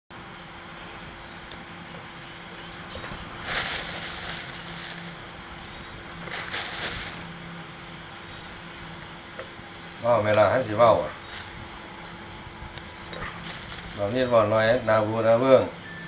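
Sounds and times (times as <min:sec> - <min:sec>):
crickets chirping: 0:00.1 - 0:16.0
rustling: 0:02.9 - 0:05.4, 0:06.2 - 0:07.4, 0:11.2 - 0:11.8, 0:13.1 - 0:14.3.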